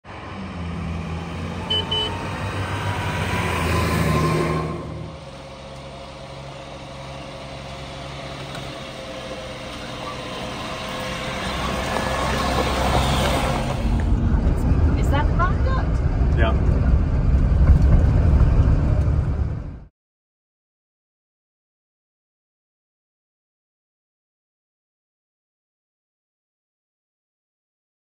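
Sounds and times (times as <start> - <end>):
diesel truck engine running: 0.2 - 19.9
short high beeps: 1.7 - 2.2.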